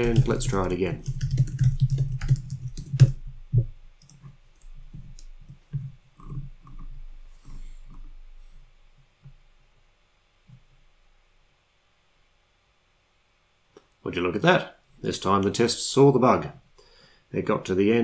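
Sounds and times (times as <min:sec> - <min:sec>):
typing on keyboard: 0:00.0 - 0:05.3.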